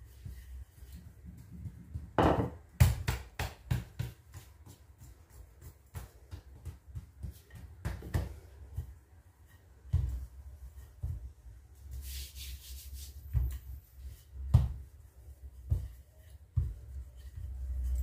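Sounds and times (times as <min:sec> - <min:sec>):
rolling pin rumbling on dough: 0:00.2 - 0:11.9.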